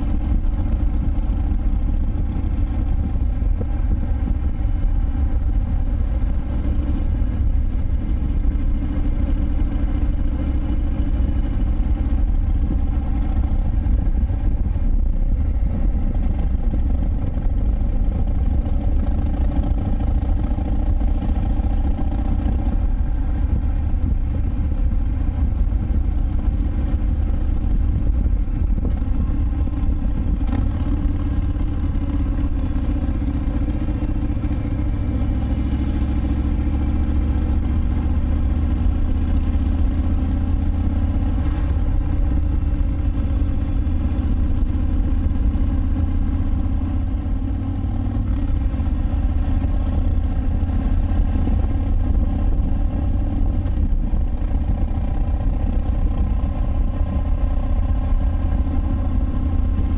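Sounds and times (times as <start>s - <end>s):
motorcycle engine cruising: 0.0s - 59.9s.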